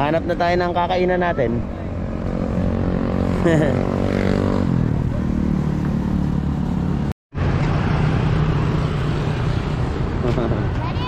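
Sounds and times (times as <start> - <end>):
vehicle engine passing: 0.0 - 10.8
street traffic rumble: 0.0 - 11.0.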